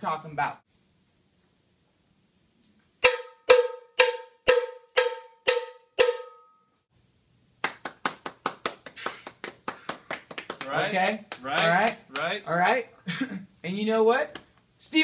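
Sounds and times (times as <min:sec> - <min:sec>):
cowbell struck: 0:03.0 - 0:06.7
hand claps: 0:07.6 - 0:12.4.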